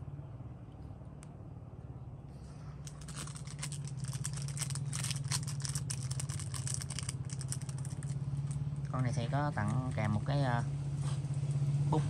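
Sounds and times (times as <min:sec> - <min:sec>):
steady low hum: 0:00.0 - 0:12.0
lighter clicking and rattling: 0:02.9 - 0:08.6.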